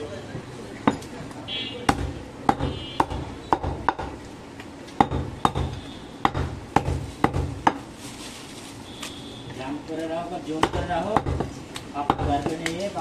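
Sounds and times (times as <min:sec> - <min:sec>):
knife chopping on wooden block: 0:01.9 - 0:04.2, 0:05.0 - 0:07.8, 0:10.6 - 0:12.8.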